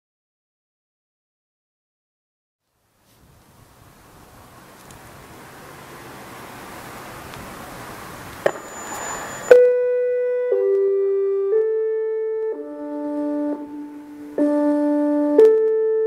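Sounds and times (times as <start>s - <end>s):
faint outdoor hiss: 2.6s - 9.8s, 12.5s - 15.4s
siren chime alert tune: 8.4s - 16.0s.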